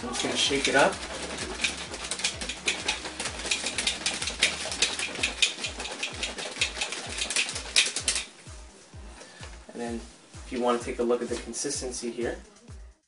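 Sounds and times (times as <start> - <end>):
shaker bottle rattling: 0.0 - 8.3.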